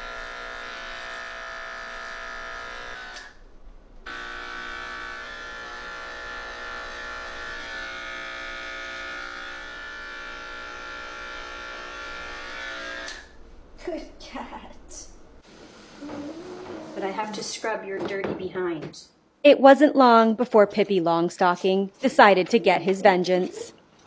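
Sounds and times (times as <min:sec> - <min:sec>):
electric pet clipper motor hum: 0:00.0 - 0:03.4, 0:04.0 - 0:13.4.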